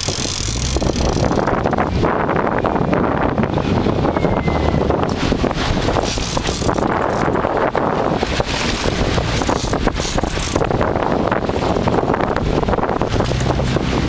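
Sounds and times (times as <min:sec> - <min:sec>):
boat engine drone: 0:00.0 - 0:14.0
wind buffeting microphone: 0:00.0 - 0:14.0.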